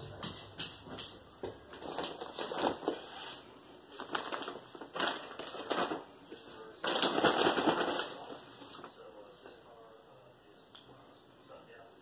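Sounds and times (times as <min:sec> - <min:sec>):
crunching and rustling handling: 0:01.5 - 0:09.0.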